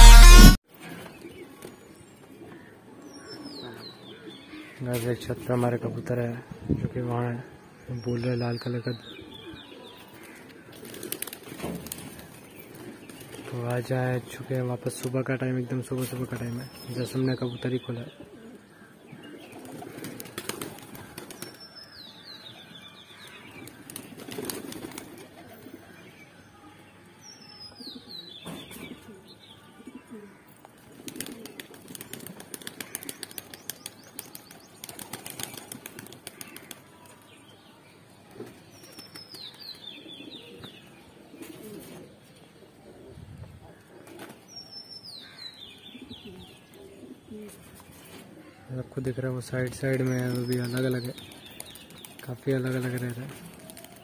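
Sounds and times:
pigeon wing flaps: 10.8 - 13.5, 19.6 - 21.6, 23.8 - 25.2, 30.9 - 36.8, 53.3 - 54.0
pigeons cooing: 18.1 - 21.5, 28.5 - 33.5, 39.9 - 44.4, 45.8 - 48.6.

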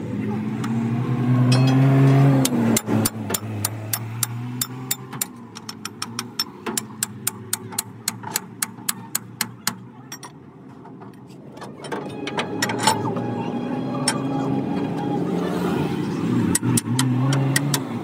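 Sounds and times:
hammer striking steel bolt: 1.5 - 10.4.

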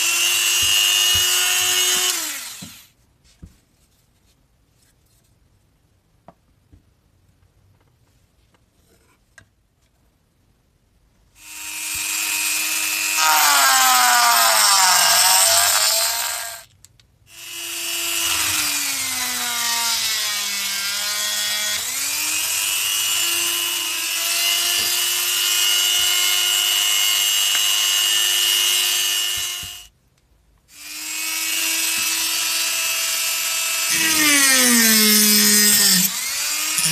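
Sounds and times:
rotary tool grinding plastic: 30.8 - 36.9.

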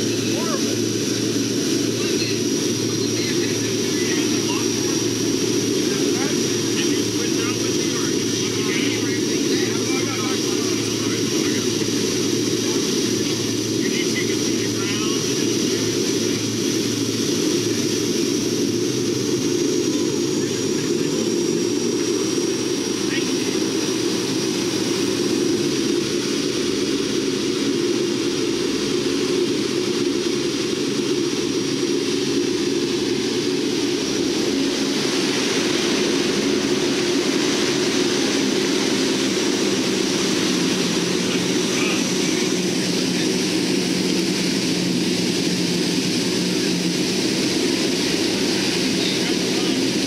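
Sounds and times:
turboprop engines droning in cabin: 0.0 - 50.0.

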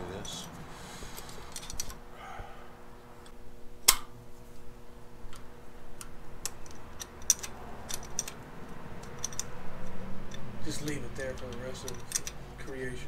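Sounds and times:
wrench clicking on metal fittings: 6.0 - 8.4, 9.0 - 12.4.

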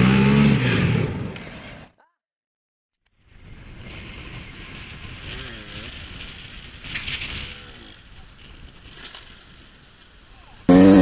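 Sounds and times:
dirt bike engine revving: 0.0 - 1.8, 10.7 - 11.0
wind on microphone: 3.3 - 9.8.

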